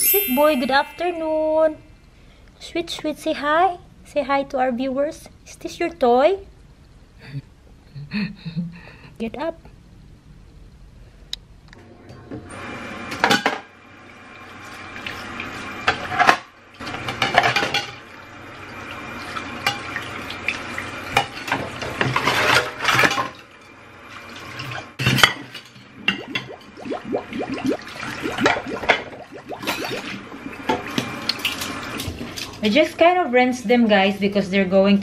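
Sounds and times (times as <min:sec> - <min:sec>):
tap water splashing into sink: 0:26.1 - 0:32.5.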